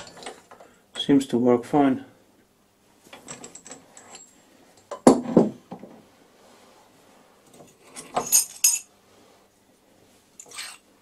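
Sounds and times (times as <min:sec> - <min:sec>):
metal parts clinking and knocking: 0:03.1 - 0:05.2, 0:07.5 - 0:08.9.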